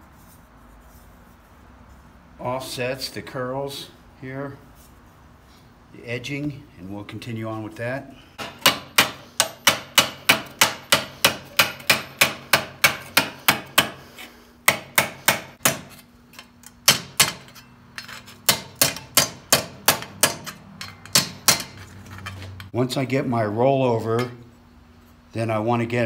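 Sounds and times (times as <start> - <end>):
hammer striking sheet metal: 8.4 - 14.0, 14.7 - 16.0, 18.4 - 21.8.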